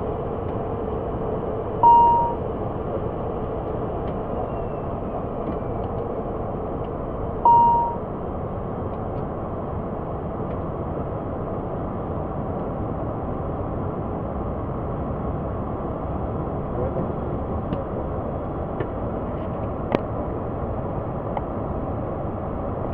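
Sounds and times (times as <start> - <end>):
short electronic beep: 1.8 - 2.4, 7.5 - 8.0.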